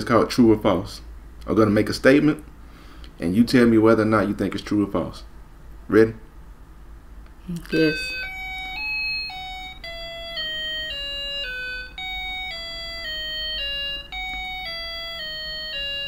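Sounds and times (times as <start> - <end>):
electronic chime jingle: 7.7 - 16.0.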